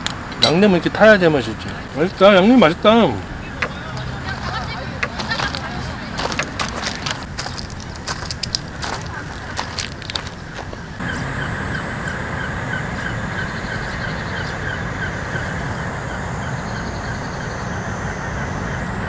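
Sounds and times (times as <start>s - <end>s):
steady low hum: 1.3s - 19.0s
fast pulsing chirp: 10.4s - 19.0s.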